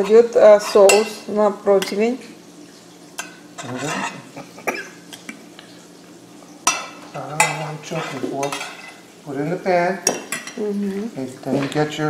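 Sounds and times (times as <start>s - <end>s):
frying sizzling: 0.0s - 12.0s
sauce stirring and scraping: 3.2s - 4.6s.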